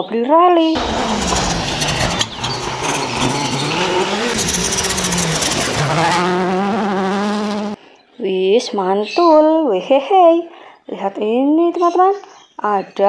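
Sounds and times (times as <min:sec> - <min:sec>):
rally car engine revving: 0:00.8 - 0:07.8.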